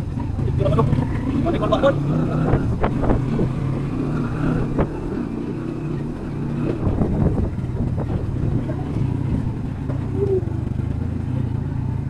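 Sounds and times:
engine running steadily: 0.0s - 12.0s.

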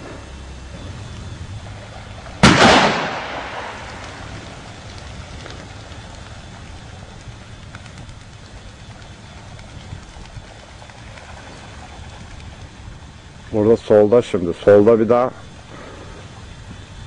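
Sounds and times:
shotgun shot echoing: 2.4s - 3.9s.

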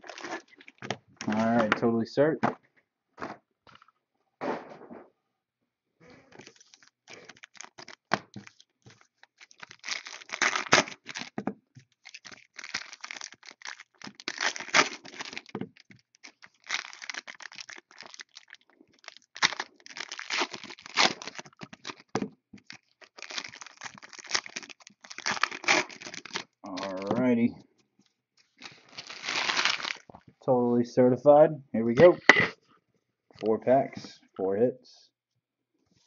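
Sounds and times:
plastic wrapping crinkling: 0.0s - 1.7s, 6.3s - 27.2s, 28.4s - 30.3s.

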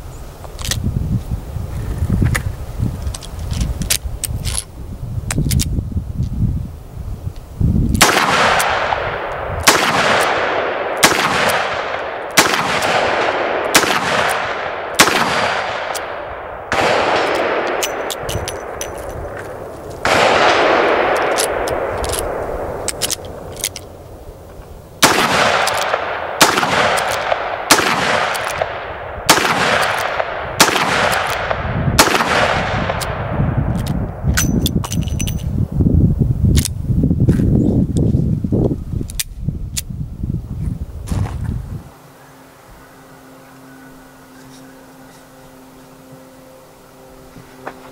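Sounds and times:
revolver gunshots with echo: 8.0s - 18.8s, 20.0s - 23.0s, 25.0s - 33.6s.

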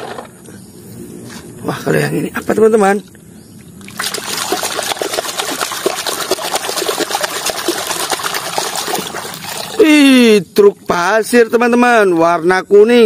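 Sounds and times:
muddy water splashing: 3.6s - 11.1s
brush scrubbing plastic toy: 4.0s - 9.8s.

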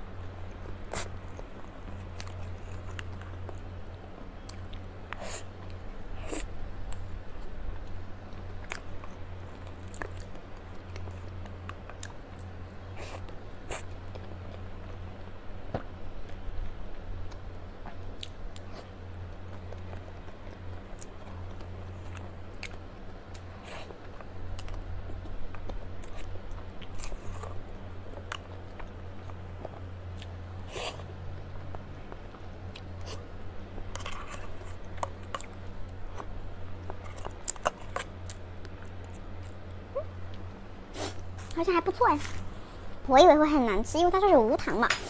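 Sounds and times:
steady low hum: 0.0s - 45.0s
soft chewing: 0.2s - 41.6s.

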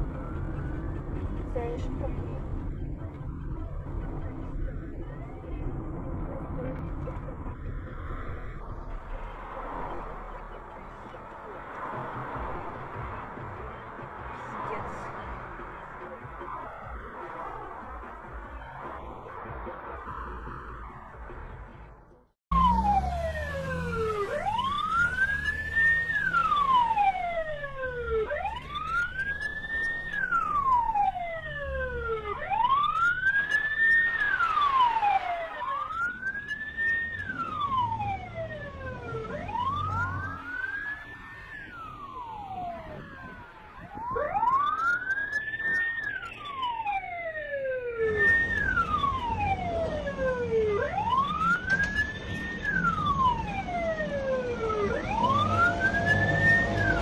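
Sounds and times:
police siren wailing: 0.0s - 21.8s, 22.5s - 57.0s
low rumble: 0.0s - 24.7s.

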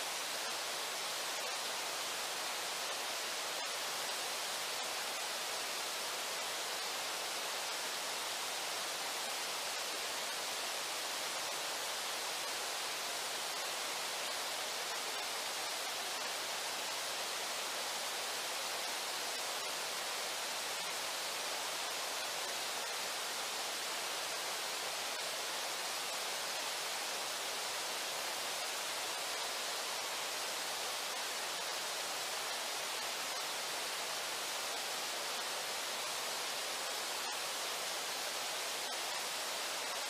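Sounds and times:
river water rushing: 0.0s - 40.0s.

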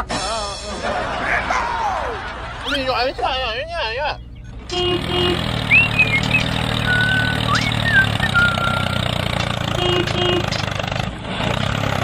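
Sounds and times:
tractor engine idling: 2.2s - 12.0s
whistled chirps: 5.6s - 9.0s.

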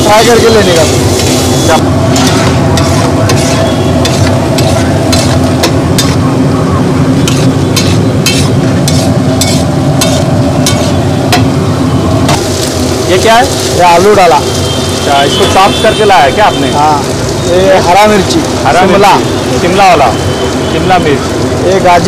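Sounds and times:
frying sizzle: 0.0s - 22.0s
metal spatula scraping griddle: 0.2s - 6.2s, 7.2s - 11.5s.

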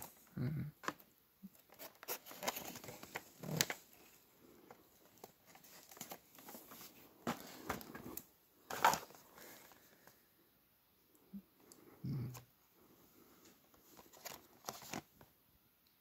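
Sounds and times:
plastic packaging crinkling: 1.6s - 10.0s, 13.8s - 15.2s.

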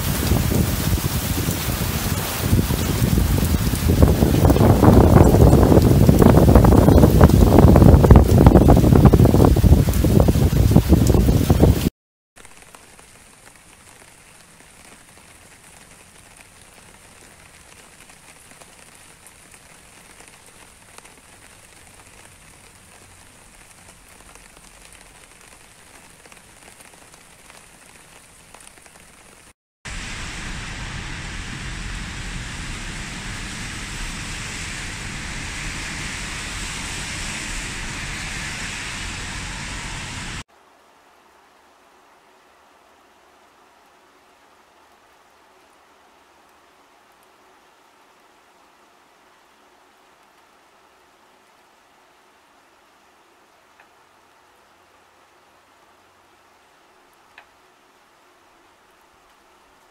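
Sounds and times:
low rumble: 0.0s - 11.9s, 29.9s - 40.5s
rain dripping on leaves: 0.0s - 39.9s, 41.0s - 59.9s
heavy rain on wet street: 0.0s - 59.9s.

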